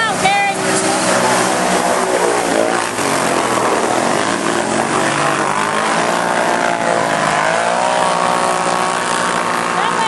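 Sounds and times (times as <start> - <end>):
atv engines revving: 0.0 - 10.0.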